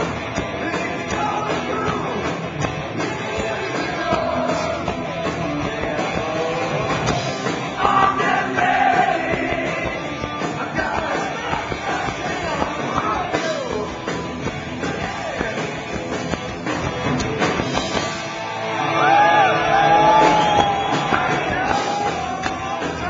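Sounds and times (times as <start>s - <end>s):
distorted electric guitar: 0.0s - 23.0s
drums: 0.0s - 23.0s
man singing: 0.6s - 2.3s, 3.0s - 16.0s, 20.9s - 23.0s.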